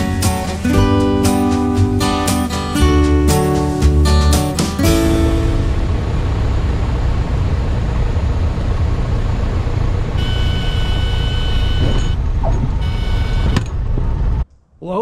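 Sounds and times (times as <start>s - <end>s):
propeller plane engine: 3.0s - 14.4s
wind and rolling noise: 5.0s - 14.5s.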